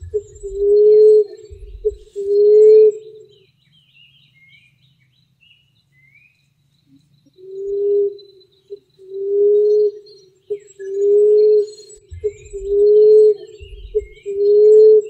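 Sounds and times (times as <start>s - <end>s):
dove cooing: 0.0s - 3.2s, 7.4s - 15.0s
small birds chirping: 0.0s - 15.0s.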